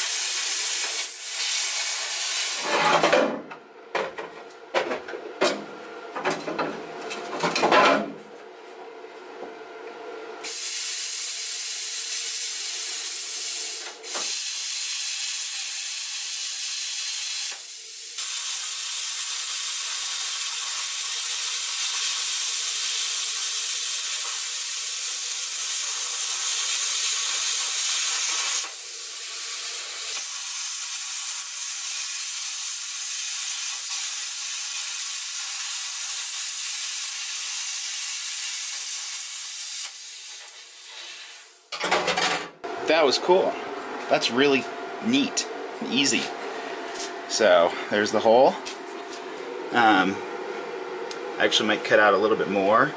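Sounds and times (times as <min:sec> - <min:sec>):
plasma cutter hissing: 0:00.0 - 0:02.7, 0:10.4 - 0:41.6.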